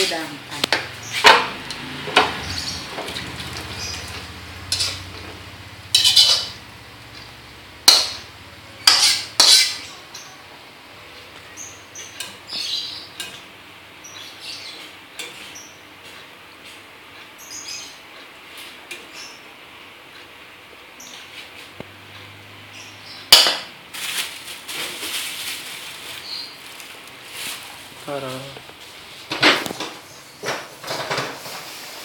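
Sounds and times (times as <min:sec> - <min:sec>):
utensils clinking and scraping: 0:01.0 - 0:07.3, 0:07.9 - 0:10.0
metal pots and pans clanking: 0:01.2 - 0:06.6, 0:07.8 - 0:09.9, 0:23.3 - 0:23.7.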